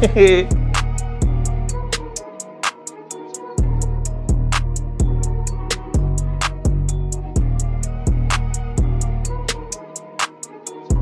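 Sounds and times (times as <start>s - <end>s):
bass and kick drum: 0.0s - 1.8s, 3.6s - 5.4s, 6.0s - 9.5s.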